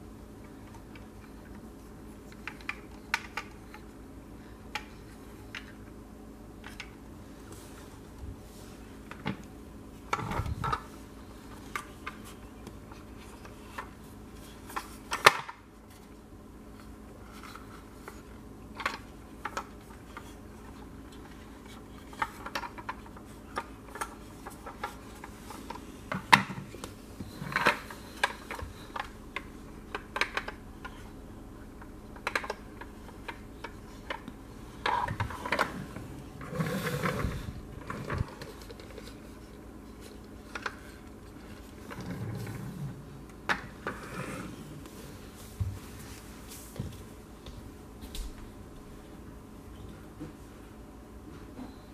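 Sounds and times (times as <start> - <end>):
faint steady hum: 0.0 - 51.9
plastic toys clicking on wooden floor: 18.8 - 31.0, 32.2 - 32.6.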